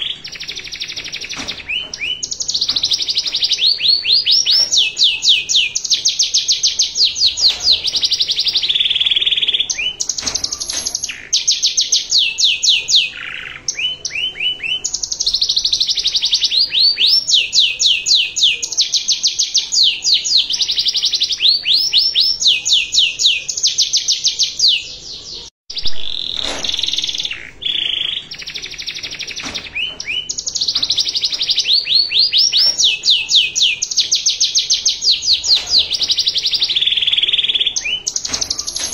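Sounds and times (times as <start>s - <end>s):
canary singing: 0.0s - 38.9s.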